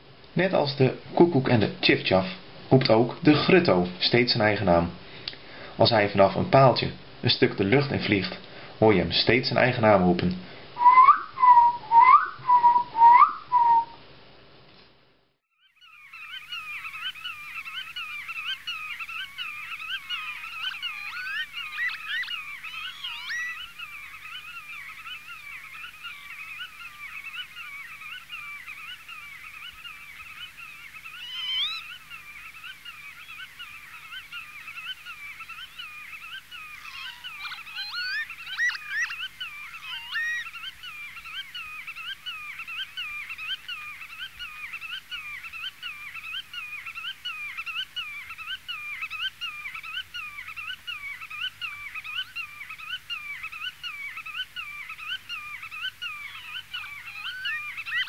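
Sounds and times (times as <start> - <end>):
godwit calling: 10.8 - 14.0, 15.8 - 58.0.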